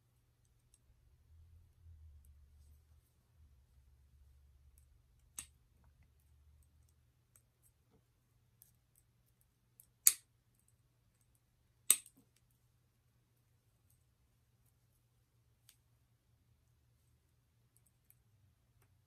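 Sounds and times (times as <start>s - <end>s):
pliers clicking on metal parts: 11.9s - 12.1s.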